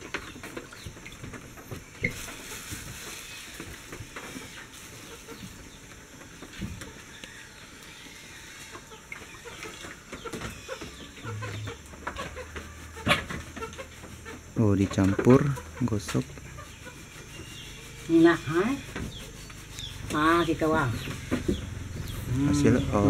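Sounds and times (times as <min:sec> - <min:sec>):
chickens clucking: 0:00.0 - 0:23.0
plastic bags rustling: 0:01.8 - 0:06.6.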